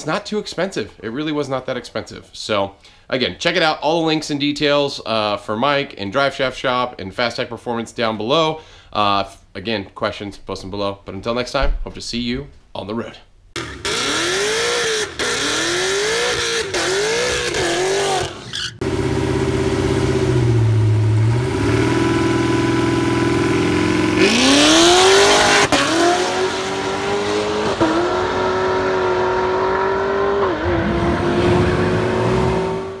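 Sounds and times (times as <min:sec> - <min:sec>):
car accelerating with upshifts: 0:13.6 - 0:33.0
car engine revving: 0:13.6 - 0:33.0.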